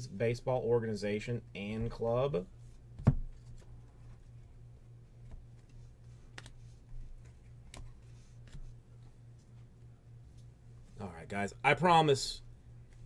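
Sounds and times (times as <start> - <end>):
low steady hum: 0.0 - 13.0
cards clicking and tapping: 5.3 - 6.6.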